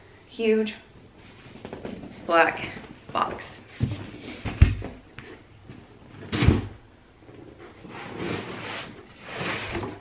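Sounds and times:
cardboard flaps rustling and scraping: 0:03.6 - 0:10.0.

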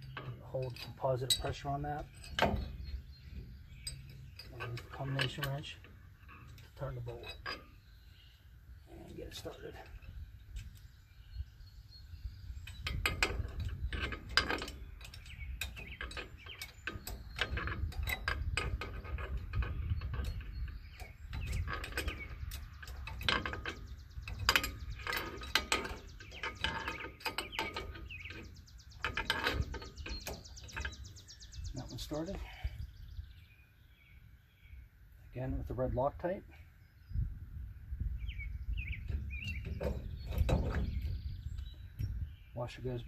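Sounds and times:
wrench clicking and scraping on bolt: 0:00.0 - 0:07.9, 0:12.6 - 0:32.5.

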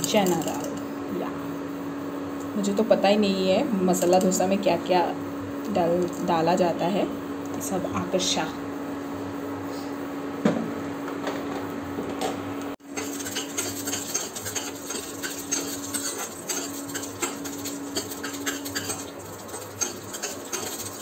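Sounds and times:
steady hum: 0:00.0 - 0:21.0
lentils crackling in hot oil: 0:12.8 - 0:21.0
metal spatula scraping pan: 0:12.9 - 0:21.0.

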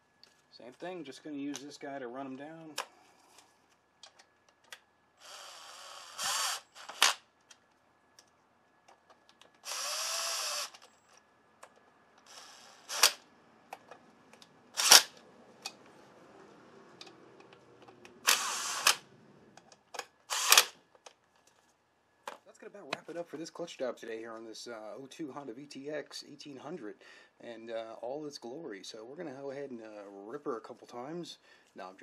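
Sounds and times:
cordless drill whirring: 0:05.2 - 0:07.2, 0:09.6 - 0:11.1, 0:12.2 - 0:13.2, 0:14.8 - 0:15.2, 0:18.2 - 0:19.0, 0:20.3 - 0:20.8
sharp drill clutch clicks: 0:05.2 - 0:07.2, 0:09.6 - 0:11.0, 0:12.2 - 0:13.2, 0:14.8 - 0:15.2, 0:18.2 - 0:19.0, 0:20.3 - 0:20.8.

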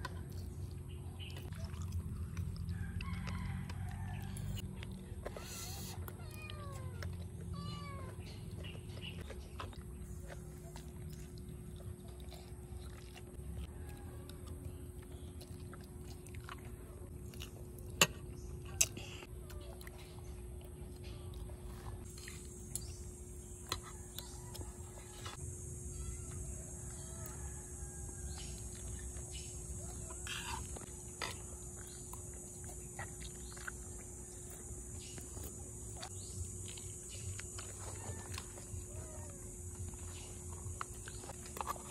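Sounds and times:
child chewing: 0:00.0 - 0:41.9.

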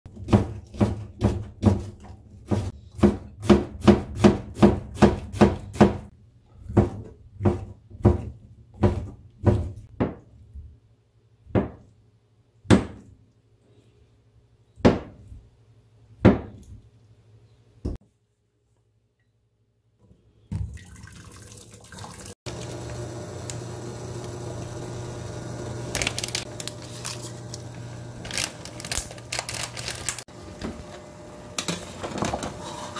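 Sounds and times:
knife chopping on plastic board: 0:00.1 - 0:06.1.

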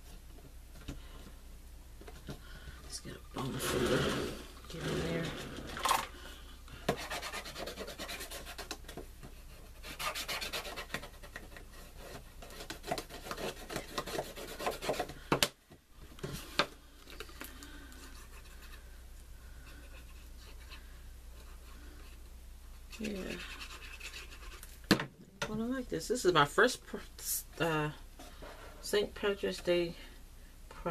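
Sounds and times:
paper rustling and scraping: 0:03.4 - 0:06.2.

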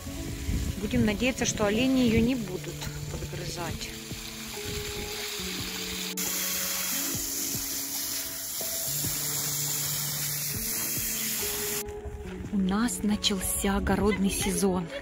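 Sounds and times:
hose spraying water on soil: 0:00.0 - 0:11.8
background music: 0:00.0 - 0:15.0.

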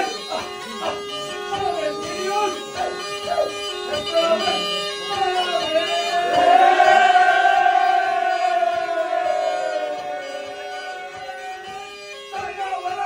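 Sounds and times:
folk dance music with drone: 0:00.0 - 0:13.0
group shout falling in pitch: 0:06.1 - 0:11.7.

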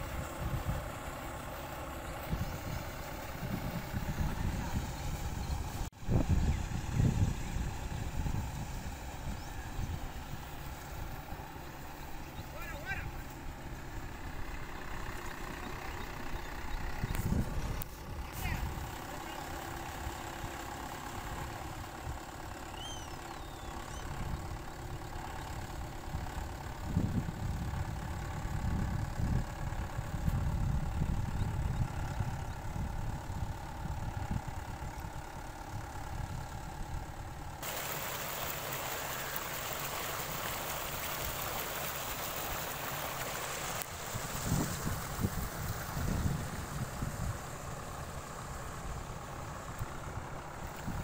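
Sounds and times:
tractor diesel engine rumbling: 0:00.0 - 0:51.0
wind hiss on microphone: 0:02.1 - 0:11.4, 0:17.0 - 0:18.9, 0:37.6 - 0:51.0
bird chirping: 0:22.7 - 0:24.1.

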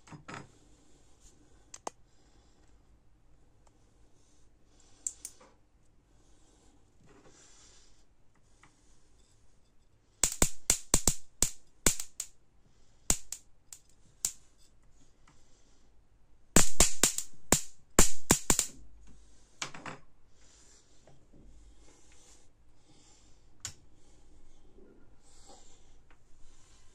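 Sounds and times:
electric sparks snapping: 0:10.2 - 0:12.3, 0:13.1 - 0:13.4, 0:16.6 - 0:18.8.

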